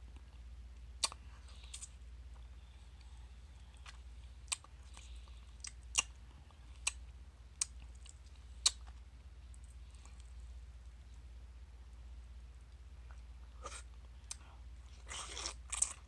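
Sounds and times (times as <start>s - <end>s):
chewing and sucking fruit: 1.0s - 10.4s, 13.1s - 16.0s.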